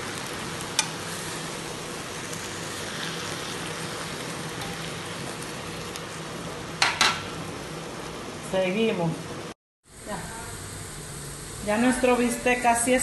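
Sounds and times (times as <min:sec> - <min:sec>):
steaks sizzling in a pan: 0:00.0 - 0:06.3.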